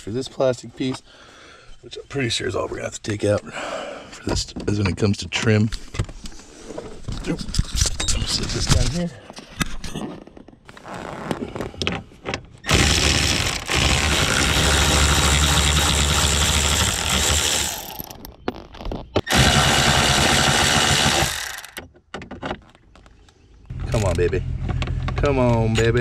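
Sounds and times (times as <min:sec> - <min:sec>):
power tool removing screws: 0:12.6 - 0:18.2, 0:19.2 - 0:21.9.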